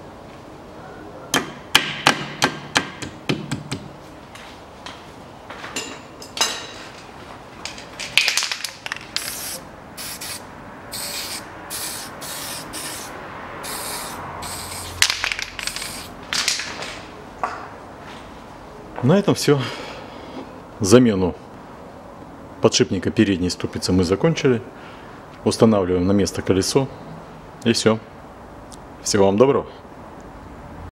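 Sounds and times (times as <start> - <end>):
spray can rattling when shaken: 8.2 - 16.7
hissing spray bursts: 9.1 - 16.2.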